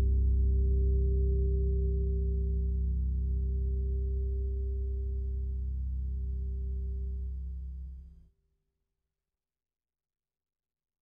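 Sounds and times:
electric bass notes with echo: 0:00.0 - 0:07.8.

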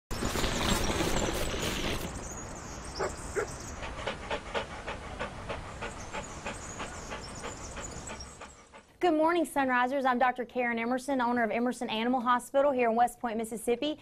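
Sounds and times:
dog panting: 0:02.9 - 0:09.0.

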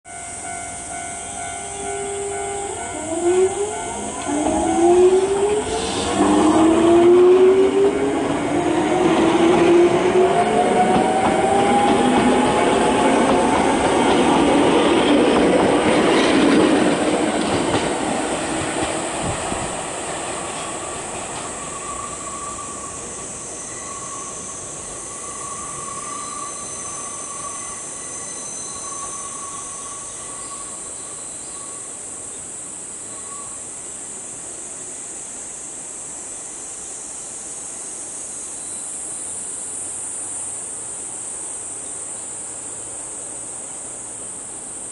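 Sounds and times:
high insect buzz: 0:00.1 - 0:15.2, 0:15.8 - 0:44.9
train wheels squealing: 0:00.1 - 0:19.7, 0:20.5 - 0:32.0, 0:33.0 - 0:33.7
electric train pulling away: 0:00.1 - 0:32.0.

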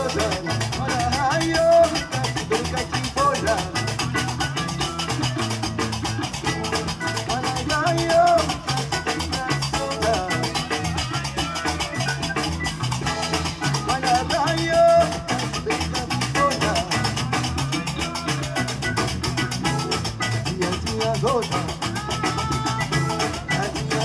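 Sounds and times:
person singing: 0:00.0 - 0:05.7, 0:07.0 - 0:19.1, 0:20.3 - 0:24.0
drum and percussion beat: 0:00.0 - 0:24.0
plucked bass line: 0:00.0 - 0:24.0.

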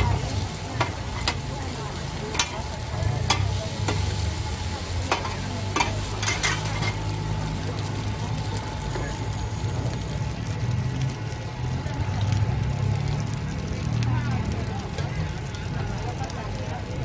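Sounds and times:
metal spatulas scraping wok: 0:00.0 - 0:01.5, 0:02.3 - 0:07.1
oil sizzling: 0:00.0 - 0:17.0.

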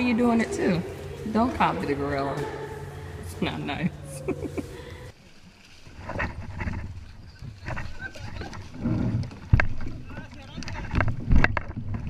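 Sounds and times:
water sloshing: 0:00.0 - 0:12.0
paddles knocking on plastic kayaks: 0:05.6 - 0:12.0.

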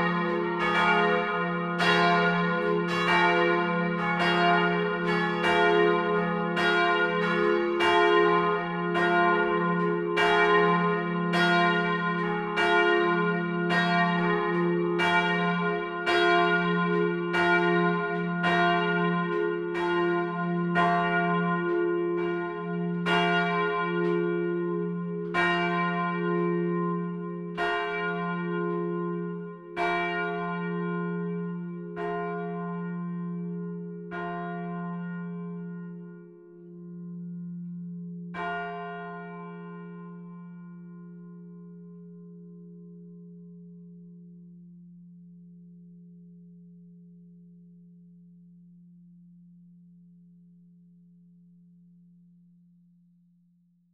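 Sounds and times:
swinging church bells pealing: 0:00.0 - 0:43.0.

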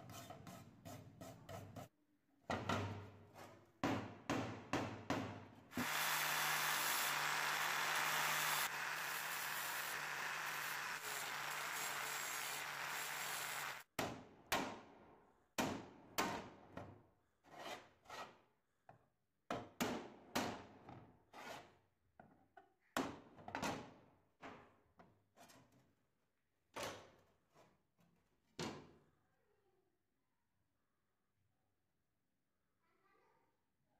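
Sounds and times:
angle grinder grinding metal: 0:05.8 - 0:13.8.

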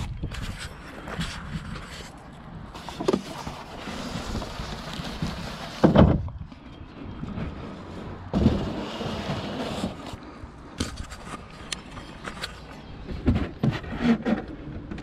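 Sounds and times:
wind gusting on microphone: 0:00.0 - 0:10.2
plastic and foam rustling: 0:02.8 - 0:06.3, 0:07.3 - 0:10.2.

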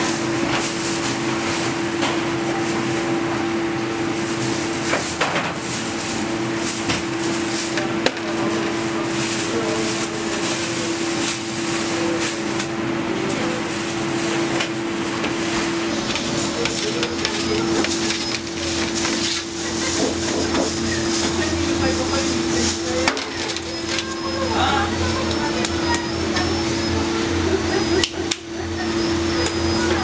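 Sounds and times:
steady machine hum: 0:00.0 - 0:30.0.

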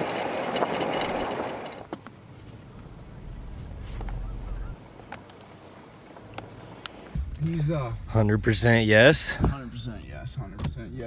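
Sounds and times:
road noise from moving vehicle: 0:00.0 - 0:11.0
faint low rumble: 0:02.2 - 0:05.2, 0:06.4 - 0:11.0.

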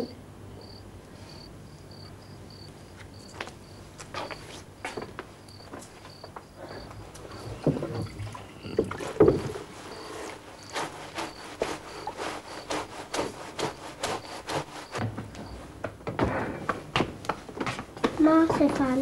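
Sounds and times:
wet clothes scrubbed in washtub: 0:07.0 - 0:15.0.

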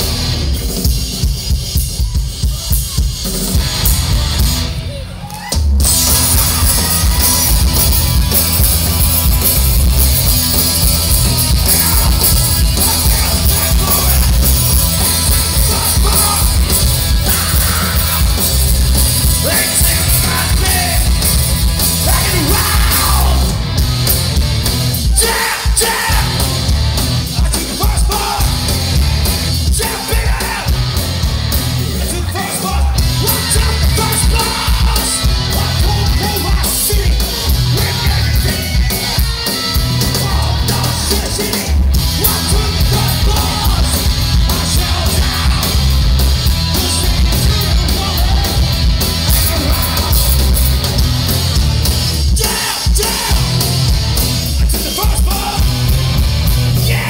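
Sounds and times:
distorted electric guitar: 0:00.0 - 0:57.0
drums: 0:00.0 - 0:57.0
person yelling vocals: 0:15.5 - 0:18.3, 0:22.0 - 0:23.5, 0:25.0 - 0:26.4, 0:56.8 - 0:57.0.

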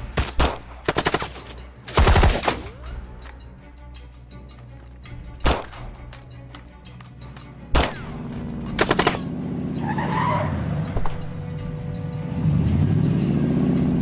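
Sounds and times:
gunshots: 0:00.0 - 0:02.7, 0:05.4 - 0:05.9, 0:07.7 - 0:08.2, 0:08.8 - 0:09.3
background music: 0:00.0 - 0:14.0
car engine revving: 0:08.0 - 0:14.0.

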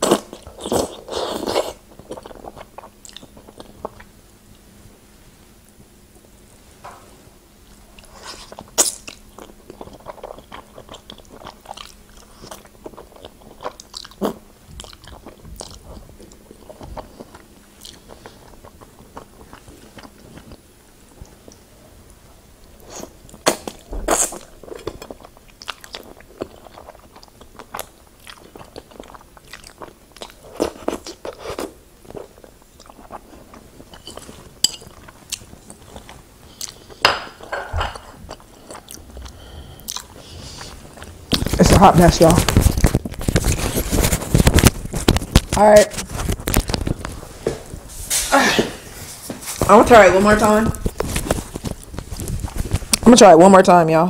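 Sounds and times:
chewing with wet mouth noises: 0:00.0 - 0:04.1, 0:07.7 - 0:21.6, 0:22.6 - 0:37.0, 0:37.9 - 0:45.5.

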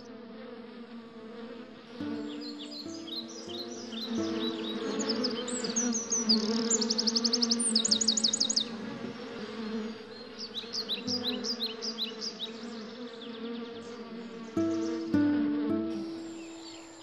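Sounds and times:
honeybees buzzing: 0:00.0 - 0:17.0
rapid high bird chirps: 0:02.0 - 0:08.7, 0:10.2 - 0:17.0.

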